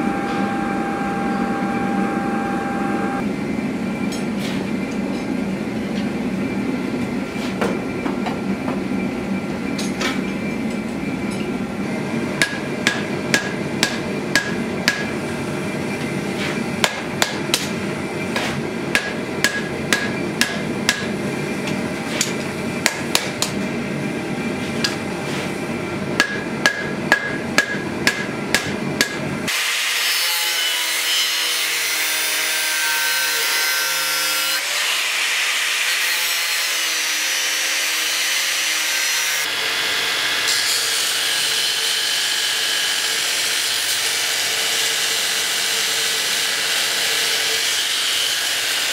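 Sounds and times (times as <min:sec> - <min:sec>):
gas forge rumbling: 0:00.0 - 0:29.5
hammer striking steel on anvil: 0:12.4 - 0:15.2, 0:16.8 - 0:17.8, 0:18.4 - 0:21.2, 0:22.2 - 0:23.6, 0:26.2 - 0:29.3.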